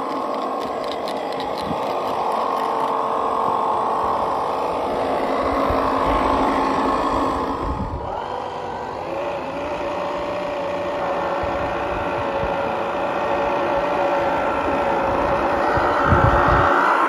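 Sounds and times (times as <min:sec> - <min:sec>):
toy car motor whining: 0:00.0 - 0:17.0.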